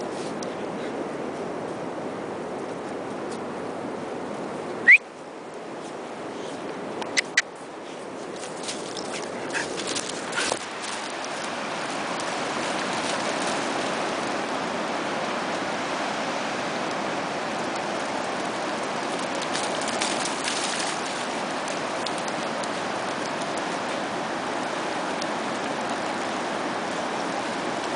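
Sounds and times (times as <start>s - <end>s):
surf washing on beach: 7.6s - 27.9s
dog splashing through water: 8.4s - 14.9s, 17.5s - 26.0s.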